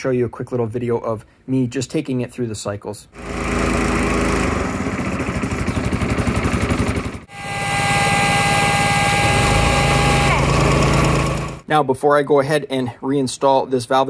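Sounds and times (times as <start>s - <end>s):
engine running: 3.2s - 11.6s.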